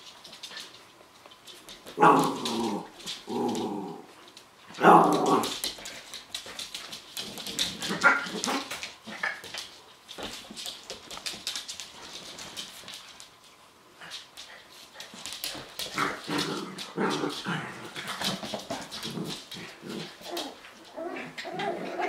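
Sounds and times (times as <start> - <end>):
rustling and scuffling: 0.0 - 22.0.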